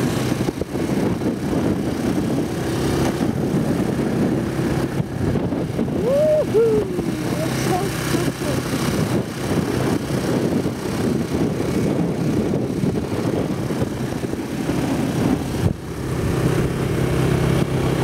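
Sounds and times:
vehicle engine running: 0.0s - 18.0s.

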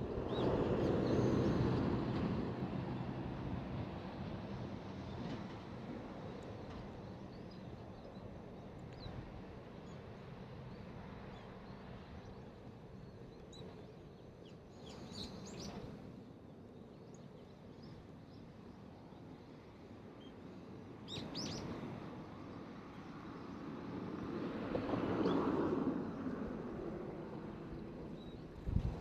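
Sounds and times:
low outdoor background hum: 0.0s - 29.0s
songbirds chirping: 6.3s - 23.6s.

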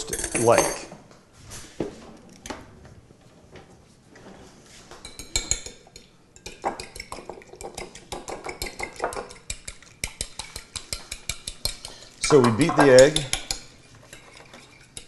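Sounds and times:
egg beaten in glass bowl: 5.0s - 15.0s.

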